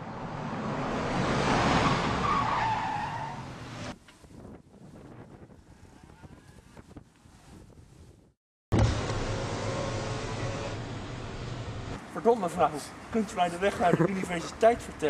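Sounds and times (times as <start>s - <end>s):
faint street noise: 9.4s - 15.0s.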